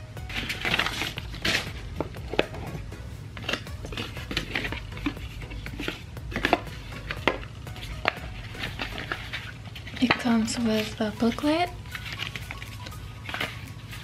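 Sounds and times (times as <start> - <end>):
cardboard and paper rustling: 0.3 - 2.8, 3.4 - 14.0.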